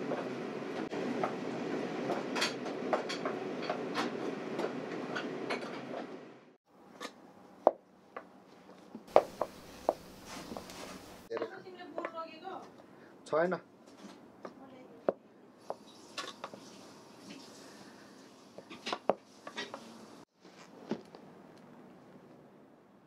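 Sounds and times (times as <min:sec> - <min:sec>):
steady cooking rush: 0:00.0 - 0:07.6, 0:09.0 - 0:13.2, 0:15.4 - 0:20.4.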